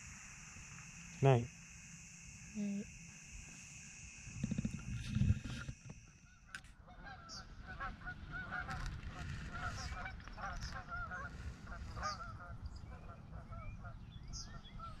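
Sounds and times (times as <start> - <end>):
insects trilling: 0.0 - 15.0
geese honking: 6.0 - 15.0.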